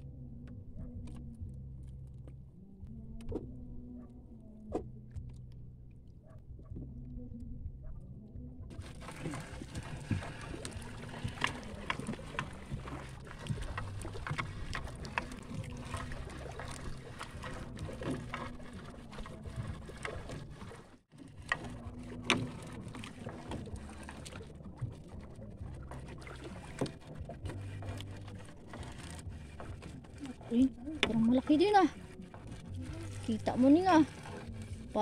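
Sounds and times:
low steady hum: 0.0s - 35.0s
fishing net knocks and clicks: 8.7s - 33.4s.

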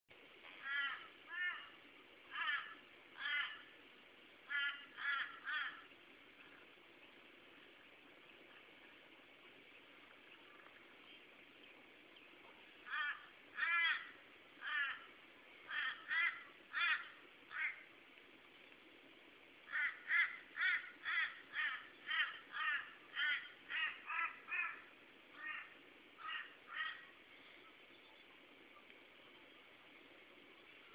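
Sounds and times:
crows cawing: 0.6s - 1.7s, 2.3s - 3.7s, 4.5s - 5.9s, 12.8s - 15.1s, 15.7s - 17.9s, 19.7s - 27.2s.

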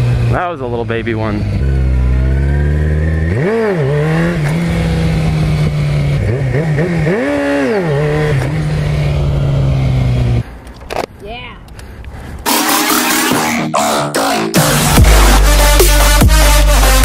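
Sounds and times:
motorcycle engine revving: 0.0s - 10.5s.

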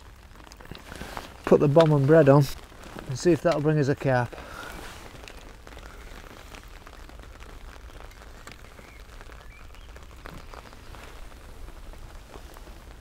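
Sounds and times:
rain on umbrella: 0.0s - 13.0s
raindrops ticking: 0.0s - 13.0s.

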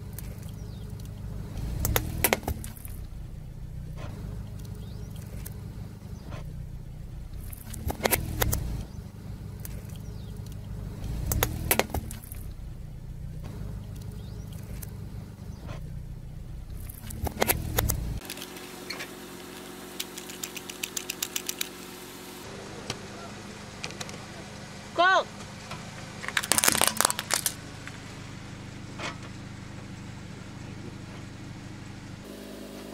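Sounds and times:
low engine rumble: 0.0s - 32.9s
plastic toy cracking under tyre: 17.1s - 18.8s, 20.0s - 21.8s, 26.2s - 27.6s
plastic toy clicks twisted by hand: 20.0s - 21.7s.

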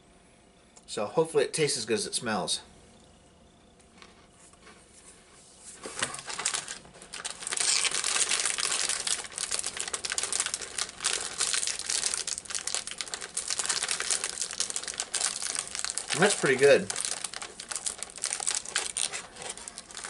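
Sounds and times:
plastic wrapper crinkling: 5.8s - 20.0s.

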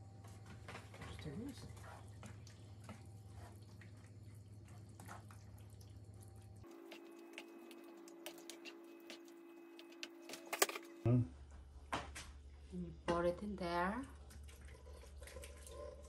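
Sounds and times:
low steady hum: 0.0s - 16.0s
spoon stirring thick sauce: 6.7s - 10.1s.

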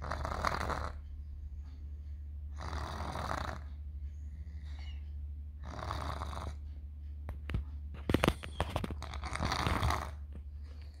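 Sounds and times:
toddler snoring: 0.0s - 1.0s, 2.5s - 3.8s, 5.6s - 6.6s, 9.0s - 10.3s
steady low hum: 0.0s - 11.0s
sharp clicks and knocks: 6.7s - 10.9s.

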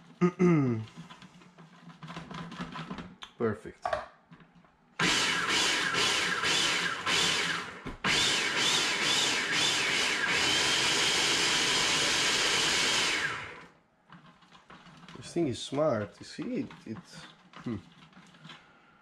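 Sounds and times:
blender motor whining: 5.0s - 13.7s.

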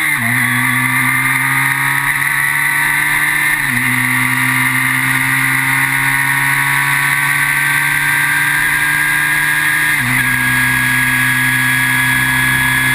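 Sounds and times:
engine upshift: 0.0s - 12.9s
race car engine under load: 0.0s - 12.9s.

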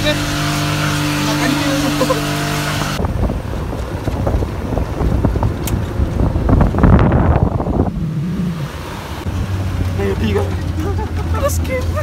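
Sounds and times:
truck bumps and rattles: 0.6s - 7.4s, 9.3s - 12.0s
wind buffeting microphone: 2.8s - 12.0s.

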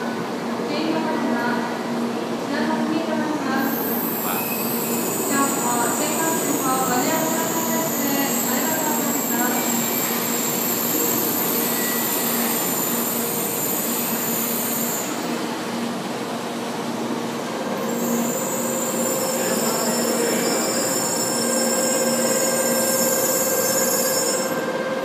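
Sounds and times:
thin whining tones: 17.9s - 24.7s.

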